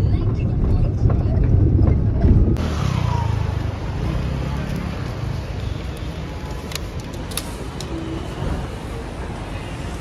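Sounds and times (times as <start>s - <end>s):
car engine rumble: 0.0s - 5.6s
outdoor traffic noise: 0.0s - 10.0s.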